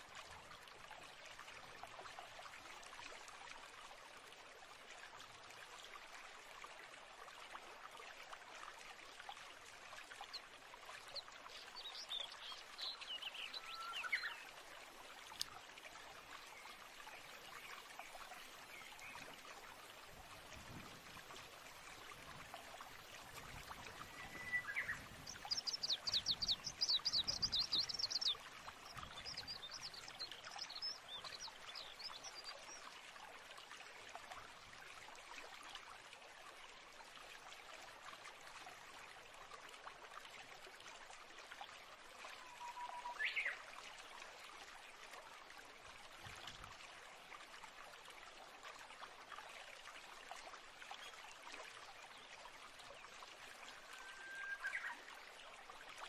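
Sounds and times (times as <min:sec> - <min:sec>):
running water rushing: 0:00.0 - 0:56.0
birdsong: 0:11.6 - 0:14.5, 0:23.9 - 0:32.8.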